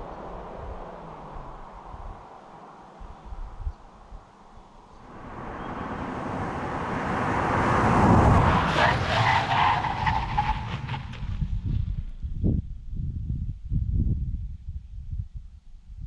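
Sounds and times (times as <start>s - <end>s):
car driving past: 0.0s - 11.2s.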